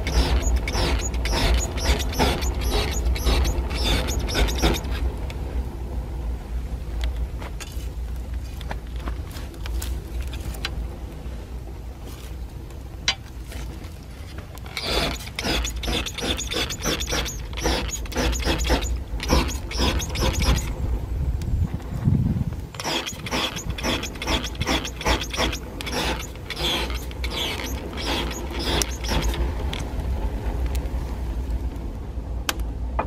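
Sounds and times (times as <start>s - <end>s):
low steady rumble: 0.0s - 33.0s
spray bottle squirting: 14.8s - 20.7s, 22.8s - 29.4s.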